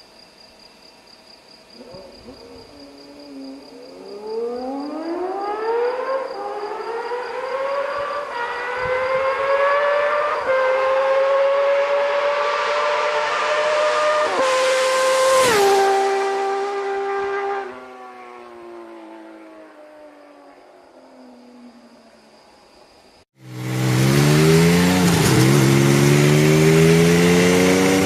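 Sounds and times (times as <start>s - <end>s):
motorcycle accelerating hard: 3.9s - 19.2s, 23.4s - 28.0s.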